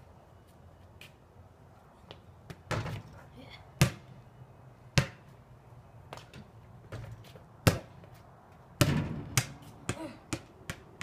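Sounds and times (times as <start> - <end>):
basketball bouncing on concrete: 2.5 - 3.1, 3.8 - 4.1, 4.9 - 5.3, 6.1 - 8.2, 8.8 - 11.0.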